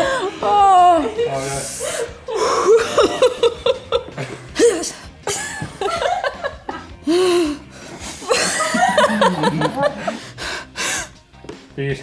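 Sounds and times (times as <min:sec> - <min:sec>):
woman giggling: 0:02.3 - 0:06.9, 0:08.2 - 0:10.2.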